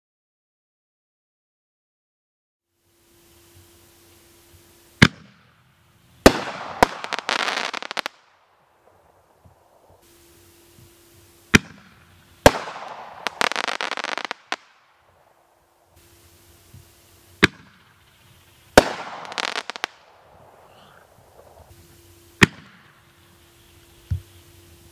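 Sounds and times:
firework crackling: 2.9 - 24.9
firework shell bursting: 3.6 - 23.4.

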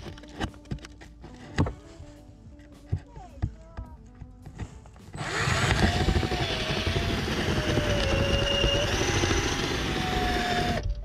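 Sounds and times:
power drill drilling into plywood: 5.2 - 10.9.

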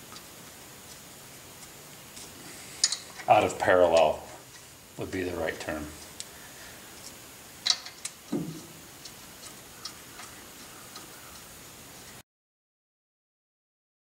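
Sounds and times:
metal clicks and clinks: 2.8 - 3.3, 7.6 - 8.6.

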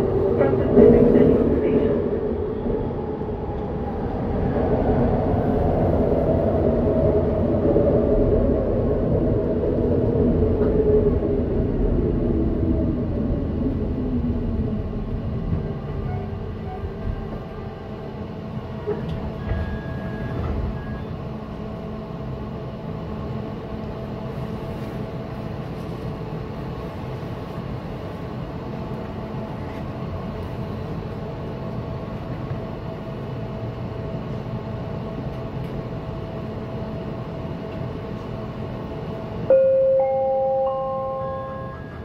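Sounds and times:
train equipment humming: 8.9 - 42.0
rising three-note chime: 39.5 - 42.0.

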